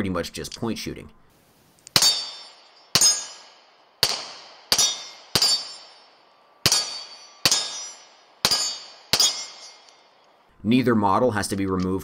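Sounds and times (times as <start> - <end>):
pistol shots with ringing tail: 1.9 - 10.2.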